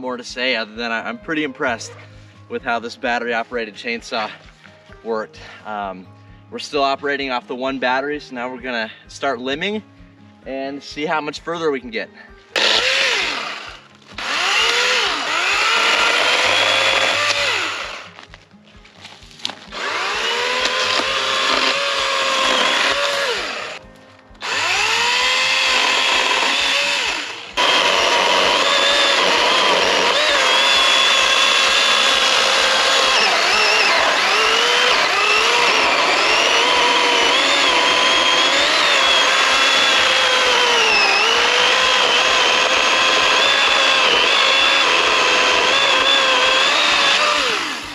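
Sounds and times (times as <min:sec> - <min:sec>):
electric chainsaw motor whining: 0:12.6 - 0:18.2, 0:19.7 - 0:23.8, 0:24.4 - 0:47.9.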